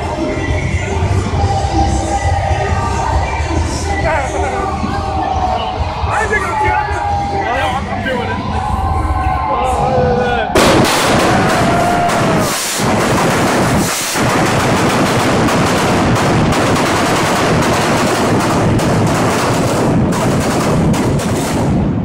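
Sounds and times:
pyrotechnic bangs and crackles: 0:10.6 - 0:22.0.

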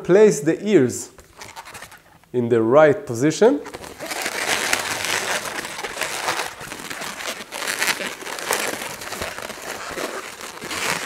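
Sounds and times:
balloon rubbing and scraping: 0:01.2 - 0:02.2, 0:03.7 - 0:11.0.

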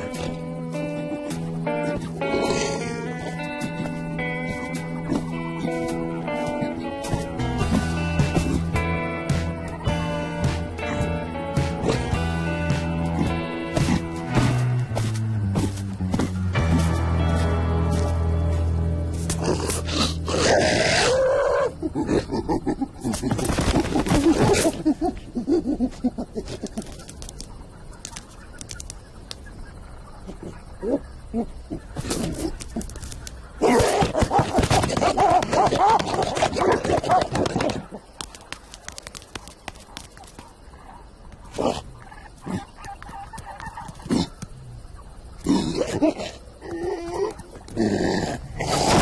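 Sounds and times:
cartoon animal grunts: 0:19.7 - 0:23.4.

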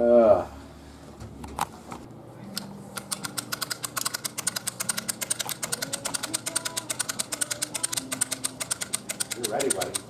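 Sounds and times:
crank ratcheting clicks: 0:03.0 - 0:10.0.

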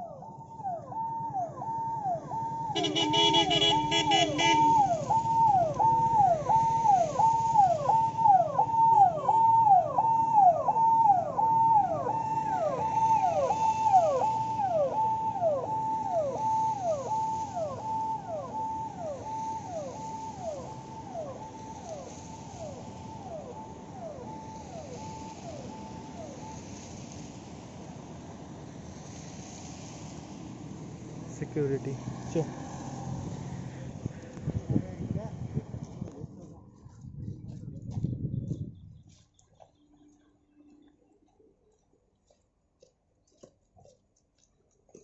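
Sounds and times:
siren falling wail: 0:00.0 - 0:28.3, 0:32.4 - 0:34.0
car horn: 0:02.6 - 0:05.0.

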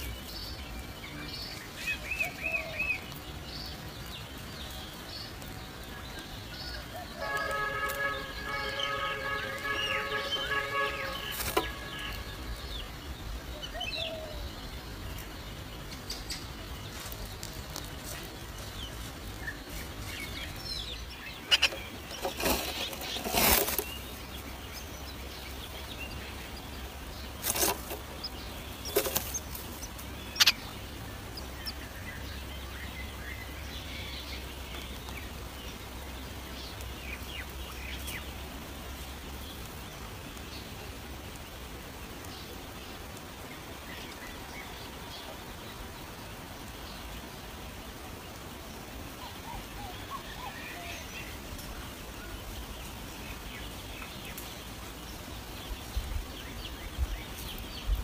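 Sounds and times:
nestlings chirping: 0:00.0 - 0:41.4
bird wings fluttering in nest box: 0:11.1 - 0:11.8, 0:21.6 - 0:24.2, 0:27.4 - 0:30.0.

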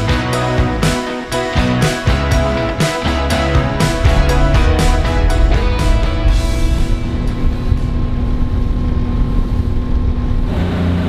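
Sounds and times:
background music: 0:00.0 - 0:08.8
outboard motor droning: 0:00.0 - 0:11.0
wind and water rushing: 0:02.5 - 0:10.8.

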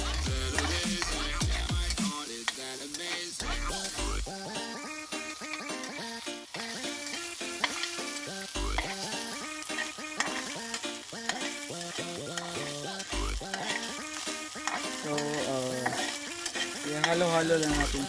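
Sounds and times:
background music with bass: 0:00.0 - 0:02.3, 0:03.3 - 0:04.6, 0:08.4 - 0:09.4, 0:12.0 - 0:13.8, 0:16.8 - 0:18.0
metal spatula scraping wok: 0:00.0 - 0:18.0
pork fat sizzling in oil: 0:00.0 - 0:18.0.

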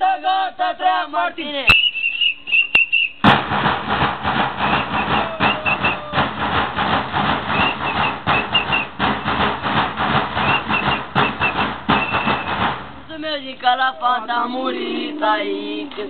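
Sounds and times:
short high whistle notes: 0:01.7 - 0:03.3, 0:04.6 - 0:06.2, 0:07.5 - 0:09.3, 0:10.4 - 0:12.6
drums beaten in fast rhythm: 0:03.2 - 0:13.3.

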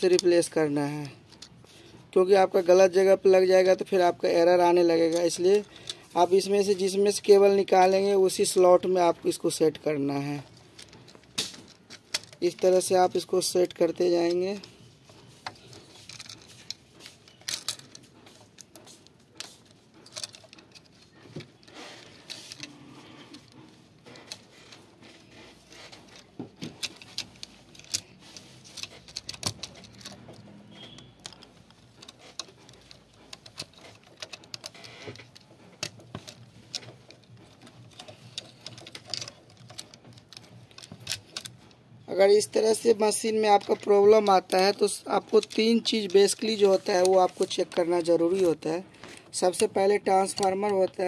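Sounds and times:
plastic connectors clicking: 0:08.3 - 0:14.8, 0:19.4 - 0:24.9, 0:25.6 - 0:51.0.

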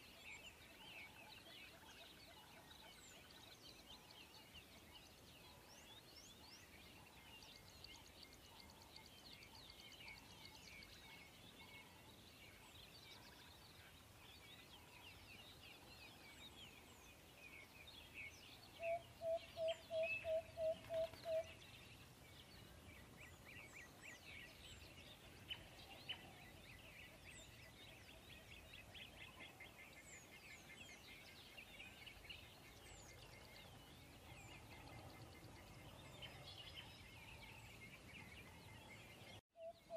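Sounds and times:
birds chirping: 0:00.0 - 0:39.9.

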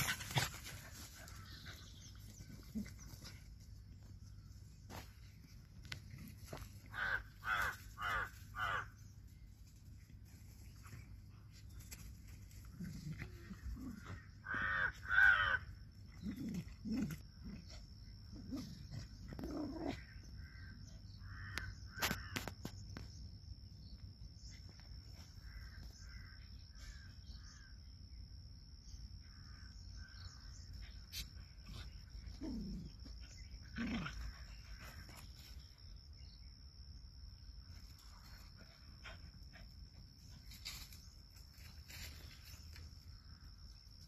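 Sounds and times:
high insect whine: 0:00.0 - 0:44.0
harsh animal calls: 0:06.9 - 0:08.9, 0:13.1 - 0:16.6.

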